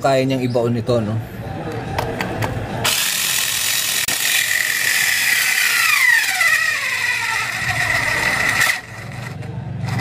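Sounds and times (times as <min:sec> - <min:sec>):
cordless screwdriver whining: 0:02.9 - 0:09.4
motor slowing tone: 0:02.9 - 0:10.0.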